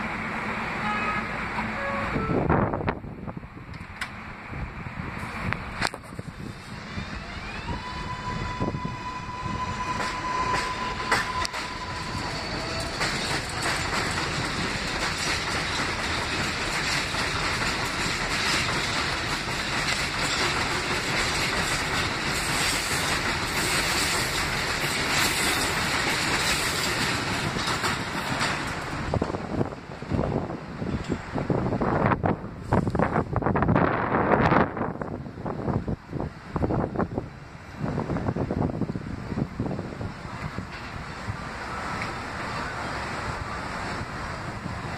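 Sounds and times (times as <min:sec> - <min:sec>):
train traction motors whining: 0:00.0 - 0:44.9
train wheels clacking over rail joints: 0:09.8 - 0:31.6, 0:39.9 - 0:44.9.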